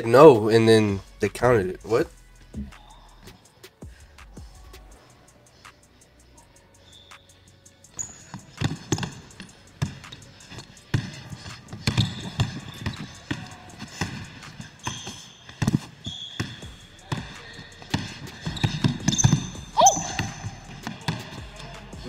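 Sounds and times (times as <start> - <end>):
shoe squeaks: 6.8 - 22.0
basketball bouncing on hardwood: 8.0 - 22.0.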